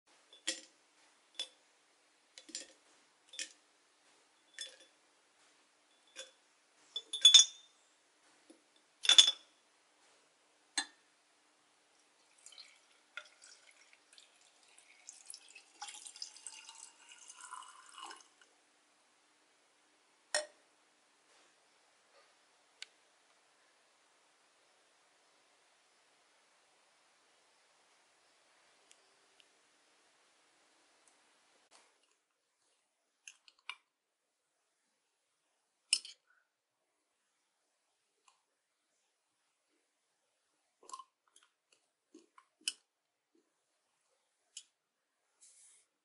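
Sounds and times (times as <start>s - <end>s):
tweezers clinking on glass jar: 4.5s - 4.9s, 7.0s - 7.7s
water pouring into jar: 12.2s - 18.4s.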